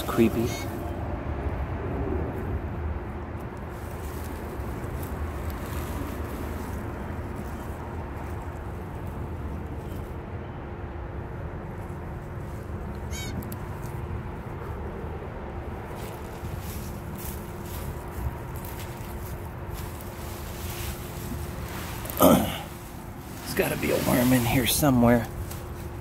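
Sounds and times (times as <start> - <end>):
dry leaves rustling and crackling: 0.0 - 1.2, 2.3 - 10.2, 11.3 - 26.0
steady low rumble: 0.0 - 26.0.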